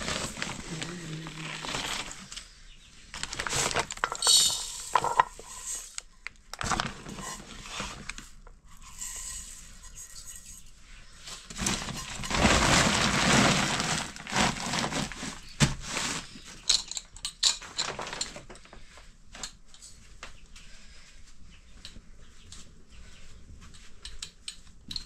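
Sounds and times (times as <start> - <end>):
plastic sack rustling: 0.0 - 2.4, 3.1 - 6.0, 6.6 - 8.3, 11.3 - 16.8, 17.6 - 18.6.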